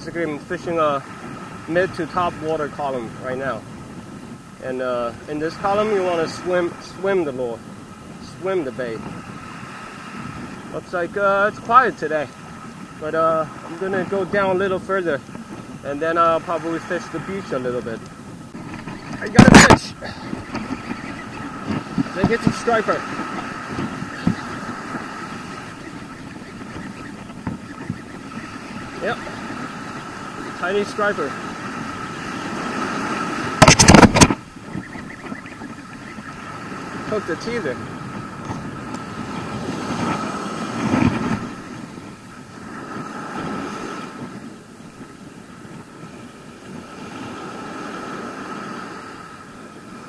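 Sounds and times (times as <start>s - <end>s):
ocean surf washing up beach: 0.0s - 50.0s
wind rumbling on microphone: 0.0s - 50.0s
sharp click: 33.6s - 34.4s.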